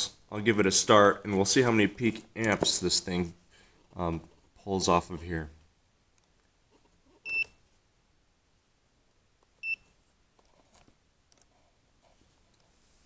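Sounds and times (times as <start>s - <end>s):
digital meter beeping: 7.2s - 7.6s.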